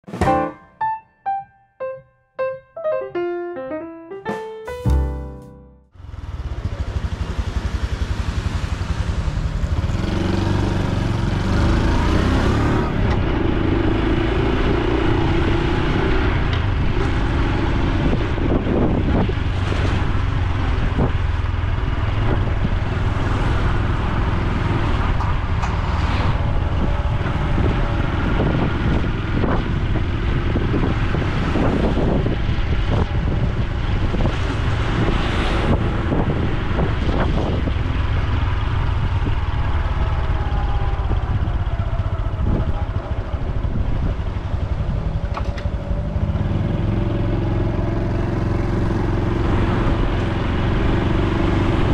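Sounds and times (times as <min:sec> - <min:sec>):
motorcycle engine running: 0:05.9 - 0:12.1.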